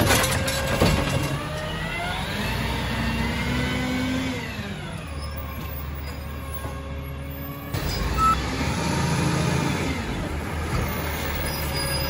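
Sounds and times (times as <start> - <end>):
diesel truck engine revving: 1.4 - 5.1, 7.7 - 11.4.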